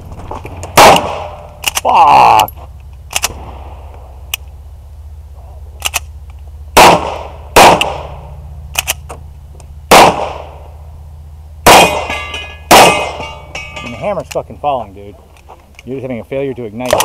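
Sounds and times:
pistol shots: 0:00.8 - 0:01.4, 0:06.8 - 0:08.2, 0:09.9 - 0:10.6, 0:11.6 - 0:13.3.

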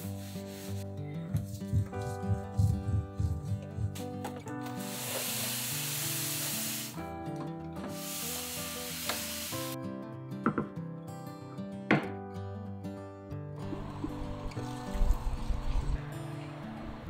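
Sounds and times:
espresso machine hissing: 0:04.8 - 0:07.0, 0:07.9 - 0:09.8.

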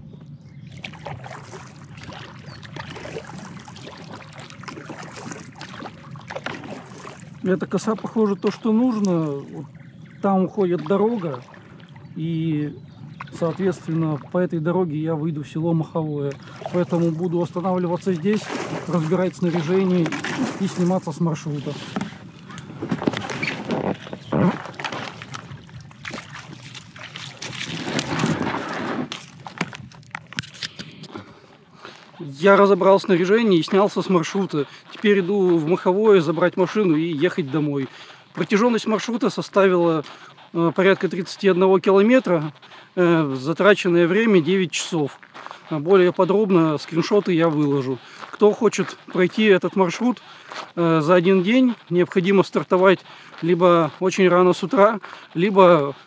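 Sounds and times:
paddle splashing in water: 0:00.7 - 0:12.2, 0:12.8 - 0:14.5, 0:16.3 - 0:32.2
water dripping: 0:00.8 - 0:12.3, 0:22.3 - 0:28.3
boat hull scraping on stones: 0:16.4 - 0:30.8
bare feet crunching on gravel: 0:40.0 - 0:56.0.

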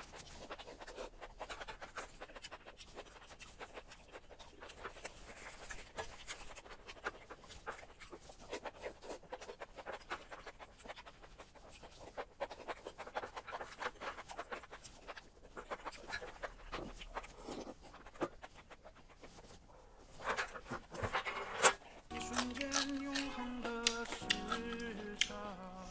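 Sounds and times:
mouth clicks and slurps: 0:00.0 - 0:25.9
chopsticks scraping metal tray: 0:21.2 - 0:25.3
music: 0:22.1 - 0:25.9.

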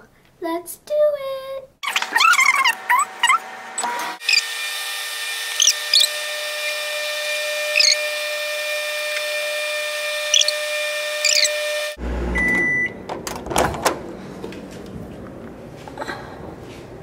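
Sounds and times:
high squeaks: 0:04.2 - 0:04.5, 0:05.5 - 0:06.2, 0:07.6 - 0:08.1, 0:10.3 - 0:11.6
microwave humming: 0:05.4 - 0:16.3
microwave beep: 0:12.3 - 0:13.1.

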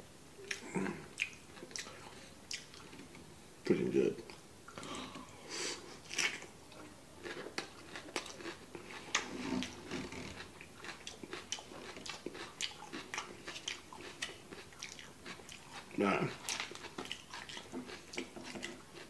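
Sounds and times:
man chewing crunchy food: 0:00.4 - 0:03.2, 0:07.2 - 0:19.0.

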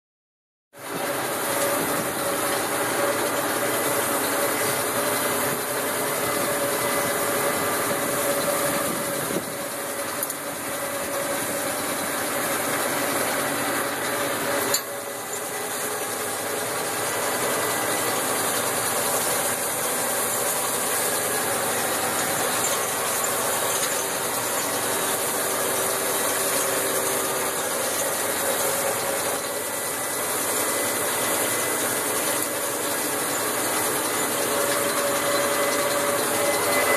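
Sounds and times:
tractor diesel engine running: 0:00.8 - 0:36.9.

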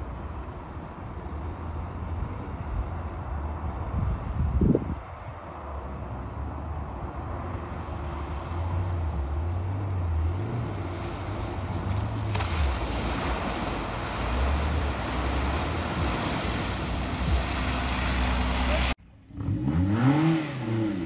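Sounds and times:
water rushing: 0:07.6 - 0:19.0.

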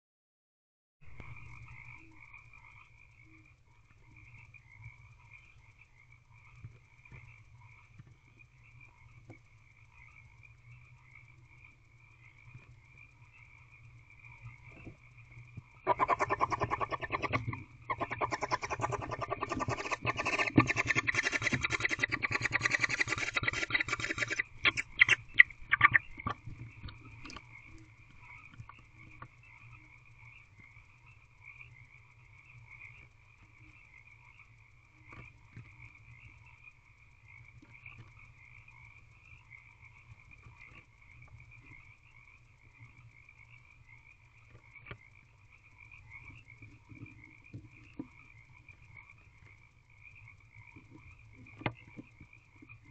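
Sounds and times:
frogs calling in chorus: 0:09.9 - 0:33.0.

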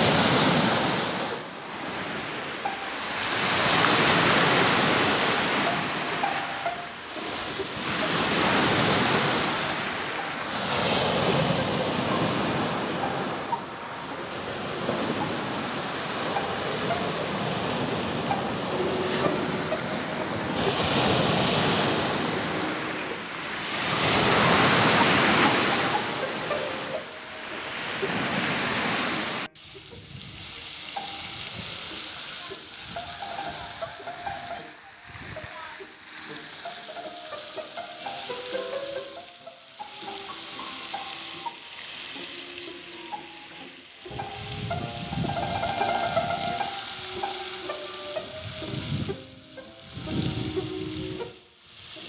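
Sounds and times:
surf breaking on pebbles: 0:00.0 - 0:06.3, 0:14.2 - 0:36.7.

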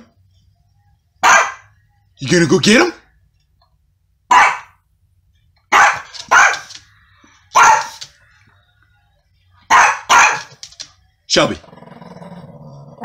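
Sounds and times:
small dog barking sharply: 0:01.2 - 0:01.6, 0:04.3 - 0:04.8, 0:05.7 - 0:06.8, 0:07.6 - 0:08.0, 0:09.7 - 0:10.6.

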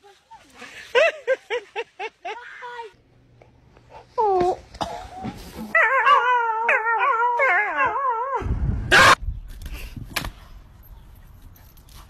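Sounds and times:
dog howling: 0:05.7 - 0:08.4.

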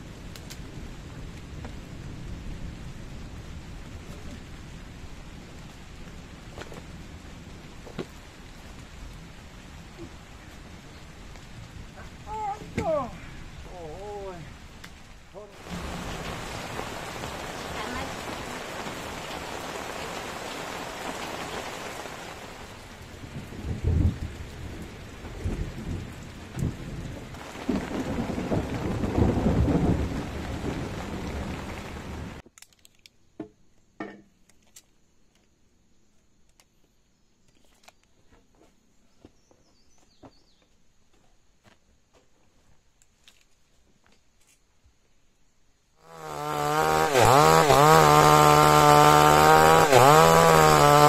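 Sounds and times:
steady rain: 0:00.0 - 0:32.4, 0:45.9 - 0:51.0
thunder rumbling: 0:15.6 - 0:32.4.

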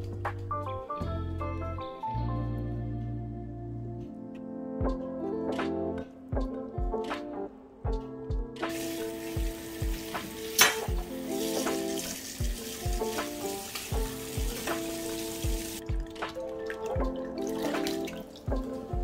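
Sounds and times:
background music with steady beat: 0:00.0 - 0:19.0
tap water pouring into steel bowl: 0:08.7 - 0:19.0.

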